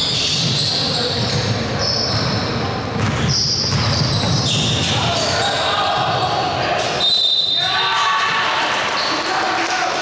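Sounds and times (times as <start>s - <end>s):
basketball bouncing in gym: 0.0s - 6.4s.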